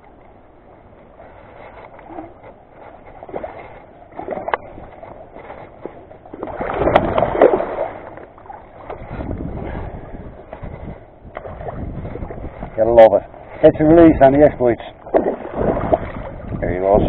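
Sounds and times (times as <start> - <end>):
boots splashing in water: 3.2 - 9.4, 11.3 - 12.5, 14.9 - 16.6.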